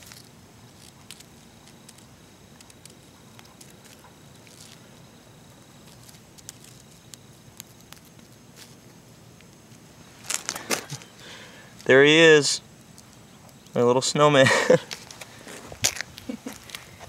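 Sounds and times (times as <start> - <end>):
low steady hiss: 0.0 - 17.0
twigs crunching in snow: 5.8 - 11.2.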